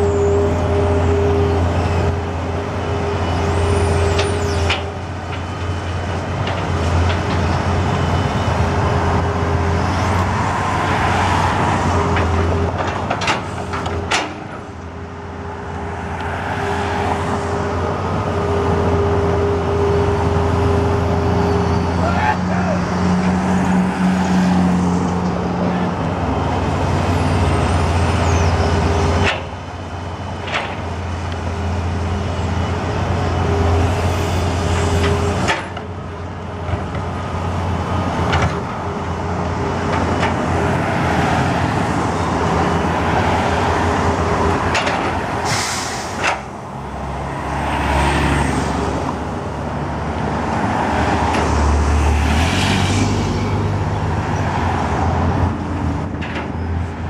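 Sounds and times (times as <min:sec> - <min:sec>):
excavator diesel engine: 0:00.0 - 0:57.0.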